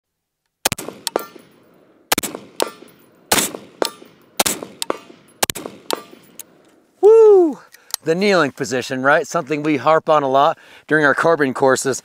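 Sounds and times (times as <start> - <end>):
rifle shots with echo: 0.6 - 6.6.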